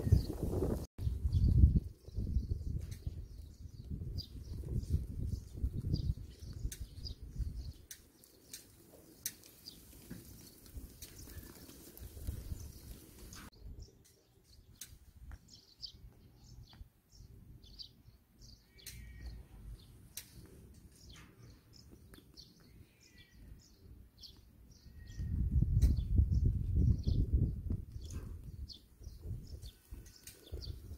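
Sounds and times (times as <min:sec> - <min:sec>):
small birds chirping: 0:00.0 - 0:30.9.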